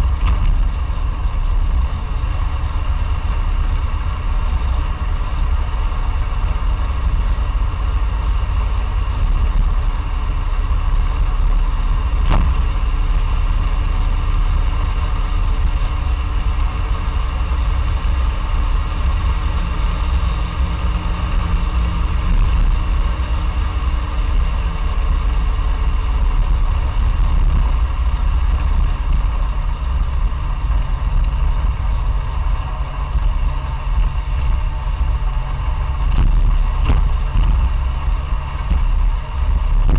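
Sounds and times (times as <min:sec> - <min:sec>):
car engine running: 0:00.0 - 0:39.9
road noise rumble: 0:00.0 - 0:39.9.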